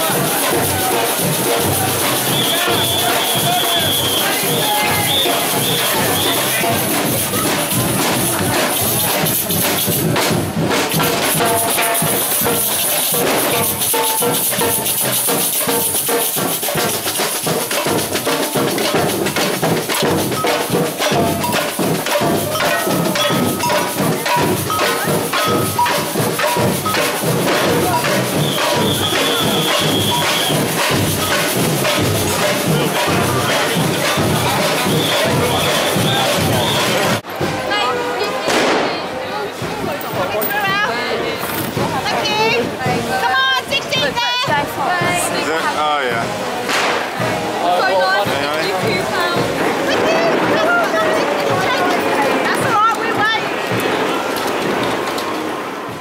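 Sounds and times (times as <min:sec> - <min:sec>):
drums and hand percussion: 0:00.0 - 0:56.0
held high notes: 0:20.0 - 0:38.6.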